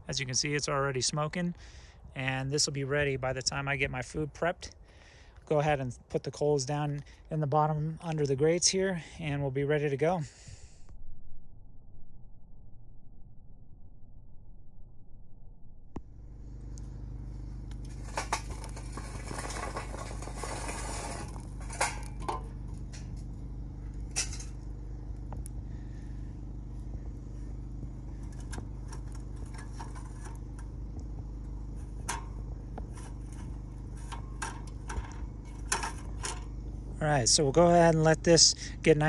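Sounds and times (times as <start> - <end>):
low hum: 0.0 - 39.0
charcoal tumbling into metal grill: 17.6 - 24.7, 27.0 - 36.7
metallic clinks and knocks: 24.0 - 24.6.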